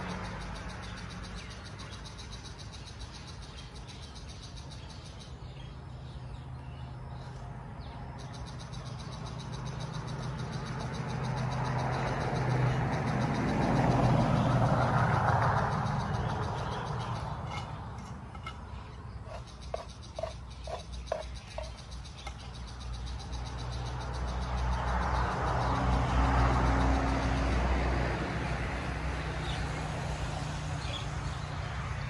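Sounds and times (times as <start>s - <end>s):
vehicle engine hum passing by: 0.0s - 32.0s.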